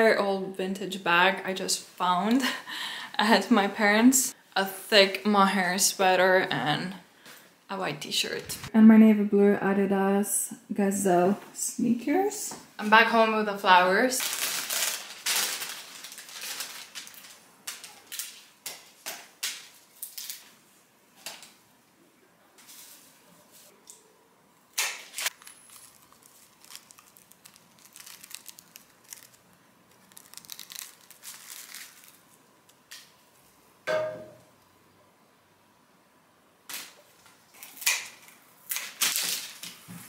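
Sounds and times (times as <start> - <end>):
paper and stems rustling: 14.0 - 20.6, 22.6 - 24.0, 24.9 - 33.1.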